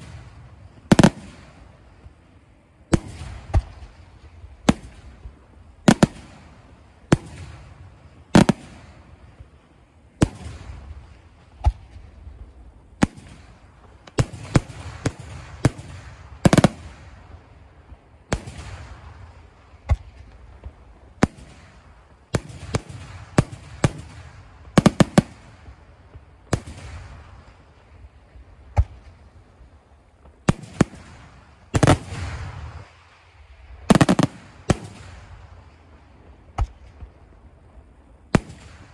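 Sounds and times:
firework shells bursting: 33.8s - 35.4s.

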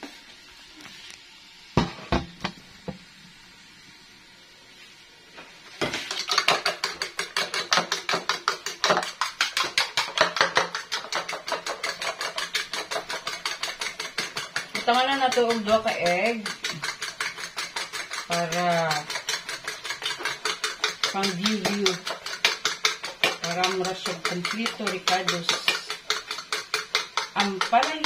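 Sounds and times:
fork beating eggs in bowl: 5.7s - 28.0s.

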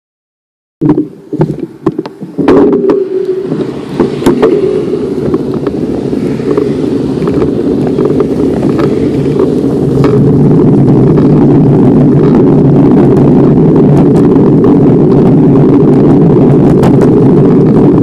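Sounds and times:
bicycle rolling noise: 0.8s - 18.0s
wind rushing over microphone: 0.8s - 18.0s.

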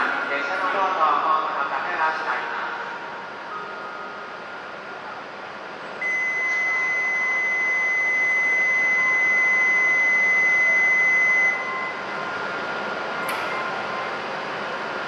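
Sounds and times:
train and station hum: 0.0s - 15.0s
high electronic departure buzzer: 6.0s - 12.1s.

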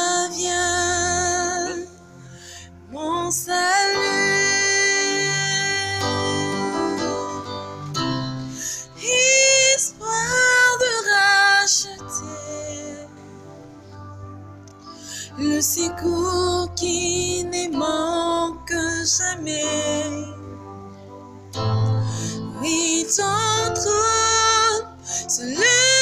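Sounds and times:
woman singing with vibrato: 0.0s - 2.0s, 2.9s - 7.5s, 8.8s - 13.2s, 15.4s - 20.4s, 22.4s - 26.0s
soft backing track with bass: 0.0s - 26.0s.

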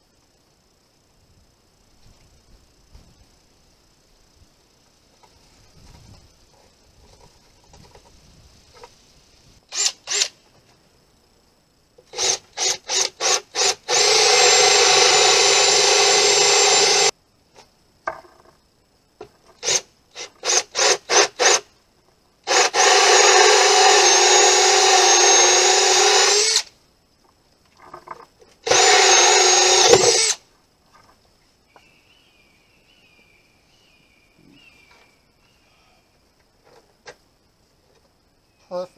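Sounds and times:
cordless drill with hole saw: 9.7s - 10.4s, 12.1s - 17.1s, 19.6s - 21.7s, 22.5s - 26.7s, 28.6s - 30.4s.

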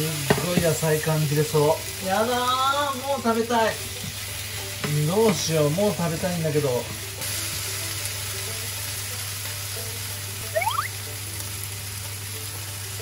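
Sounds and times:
food sizzling in a frying pan: 0.0s - 13.0s
quiet background music: 0.0s - 13.0s
brief rising whistle: 10.6s - 11.0s.

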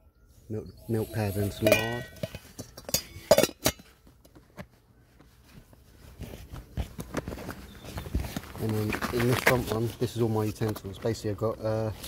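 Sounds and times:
metal and glass items clinking: 1.5s - 4.0s.

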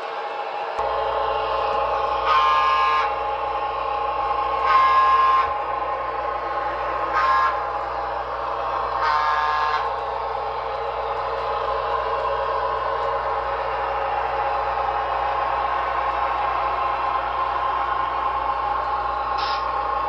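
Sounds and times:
steady running hum: 0.0s - 20.0s
model train horn blasts: 2.0s - 3.5s, 4.3s - 5.7s, 6.8s - 7.9s, 8.9s - 10.1s.

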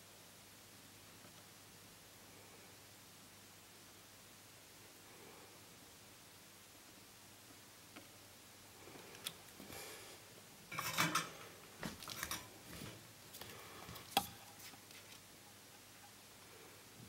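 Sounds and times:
metal tools clinking and scraping: 10.7s - 11.4s, 12.0s - 12.5s.

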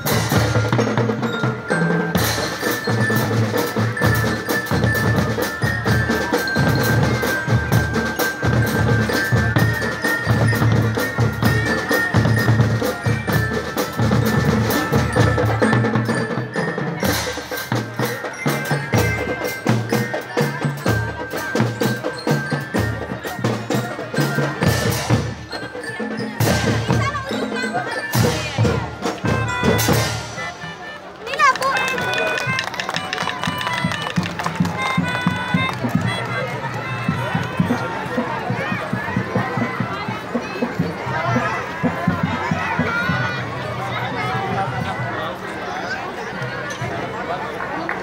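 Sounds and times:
high bell-like melody: 0.0s - 31.0s
bass and marching drums: 0.0s - 47.7s.

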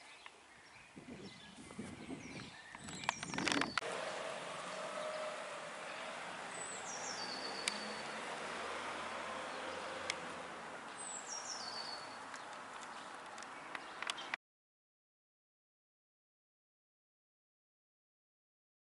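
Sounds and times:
steady outdoor hiss: 0.0s - 14.4s
songbird trilling: 5.8s - 8.2s, 9.5s - 14.4s
sharp ticks: 7.6s - 7.9s.

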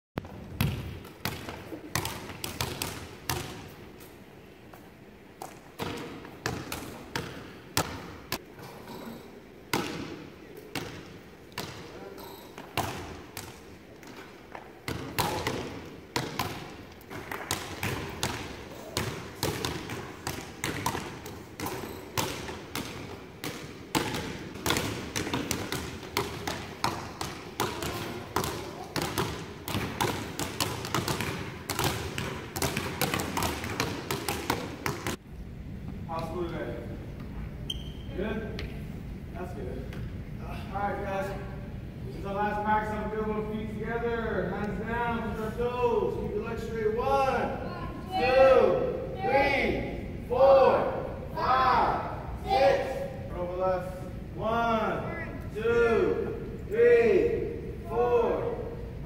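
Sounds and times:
basketballs bouncing on hardwood floor: 0.2s - 3.6s, 5.4s - 8.4s, 9.7s - 11.9s, 12.6s - 35.2s.

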